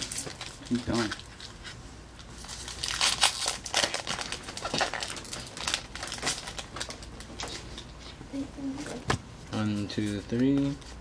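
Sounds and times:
foil wrapper crinkling: 0.0 - 7.9.

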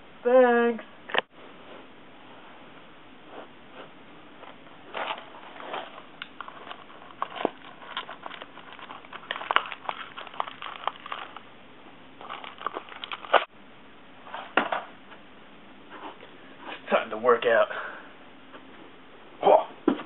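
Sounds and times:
plastic wrapper crinkling: 4.9 - 11.5, 12.2 - 13.5.

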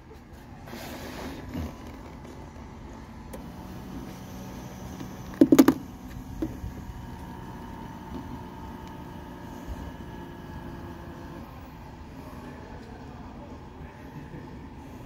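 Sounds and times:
air pump humming: 3.3 - 12.6.

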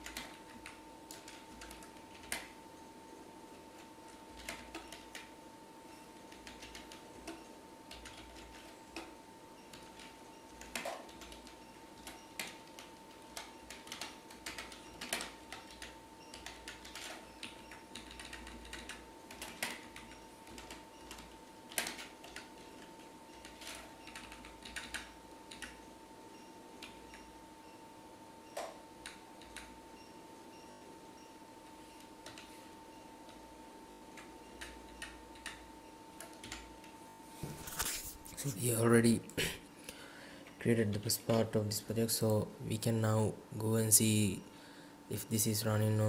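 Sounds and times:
keyboard typing clicks: 0.0 - 2.6, 3.8 - 5.3, 6.2 - 25.8, 26.8 - 27.3, 28.5 - 29.7, 32.0 - 32.6, 34.1 - 35.6, 36.2 - 36.9
faint steady whine: 0.0 - 46.0.

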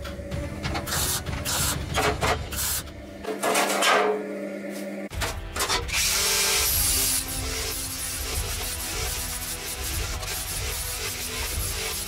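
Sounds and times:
background music: 0.0 - 3.5, 4.2 - 12.0
welder hiss: 5.9 - 12.0.

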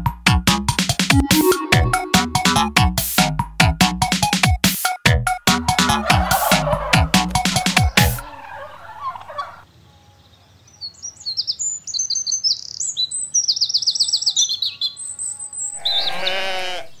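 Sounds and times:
wavering pitched sound: 1.2 - 2.9
birdsong chirps and trills: 7.4 - 17.0.

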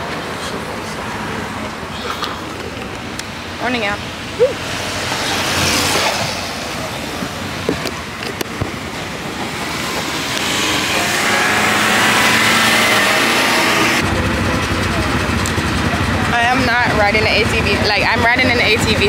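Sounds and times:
quad bike engines running: 9.8 - 19.0.

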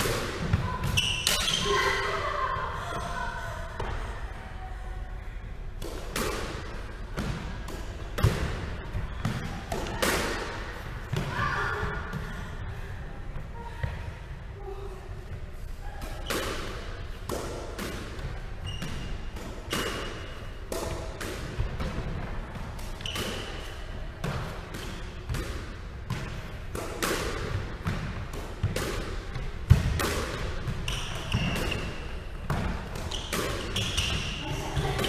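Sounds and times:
squash ball hits echoing: 0.0 - 2.3, 5.8 - 12.3, 16.0 - 35.0
shoe squeaks: 0.9 - 1.8, 18.6 - 19.2, 23.0 - 23.7, 30.9 - 32.1, 33.0 - 34.5.

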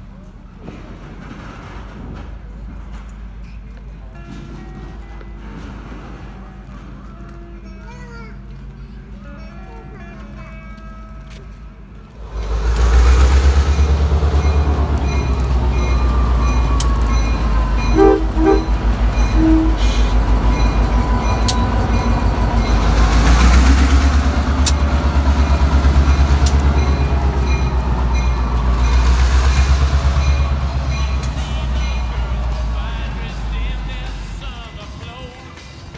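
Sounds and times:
diesel locomotive rumbling: 0.0 - 35.9
short horn toots: 17.9 - 20.2.

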